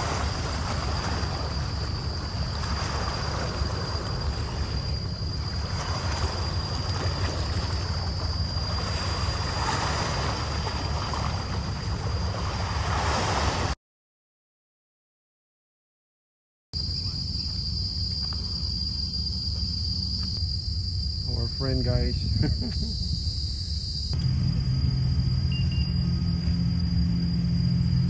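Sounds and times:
waves washing against rocks: 0:00.0 - 0:13.8
thin high-pitched tone: 0:24.2 - 0:28.0.

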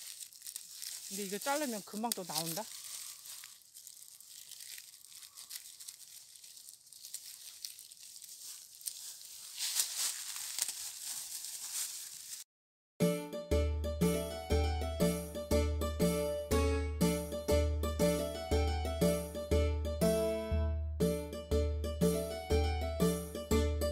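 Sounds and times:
leaf shoots snapping: 0:00.0 - 0:12.4
plastic gloves crinkling: 0:00.0 - 0:12.5
music: 0:13.0 - 0:23.9.

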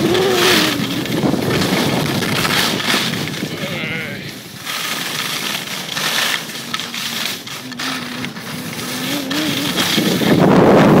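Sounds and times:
wind on microphone: 0:00.0 - 0:05.9, 0:06.6 - 0:11.0
snowboard edge scraping snow: 0:00.0 - 0:11.0.

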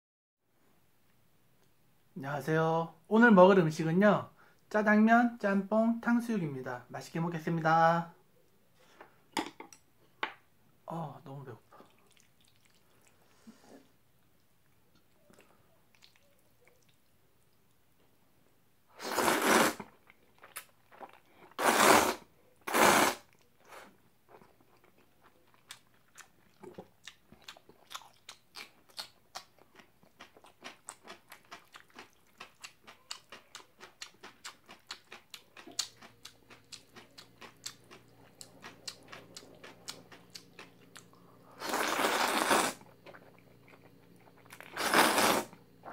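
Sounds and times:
chewing with clicks: 0:14.3 - 0:17.1, 0:24.3 - 0:41.2
slurping noodles: 0:19.0 - 0:19.9, 0:21.5 - 0:23.9, 0:41.6 - 0:42.8, 0:44.5 - 0:45.9.

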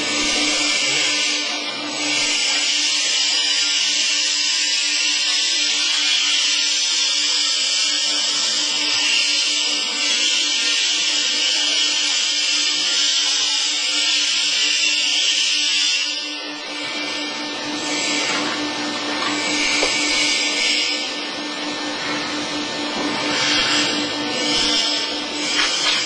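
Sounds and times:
baler machine humming: 0:16.2 - 0:26.0.

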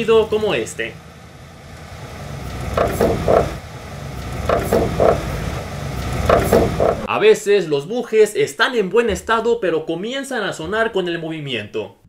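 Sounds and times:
car bushings creaking: 0:00.0 - 0:07.1
low rumble: 0:01.0 - 0:07.1.

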